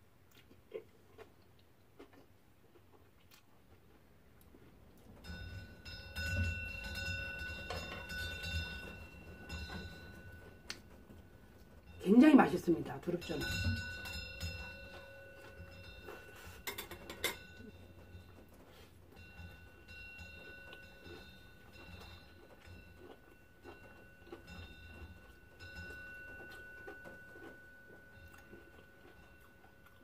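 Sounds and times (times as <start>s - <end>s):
chewing and mouth noises: 0.2s - 5.2s, 20.4s - 30.0s.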